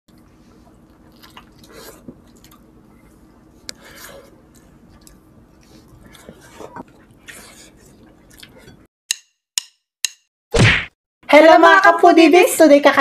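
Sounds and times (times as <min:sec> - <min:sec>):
wet chewing: 0:00.2 - 0:08.9.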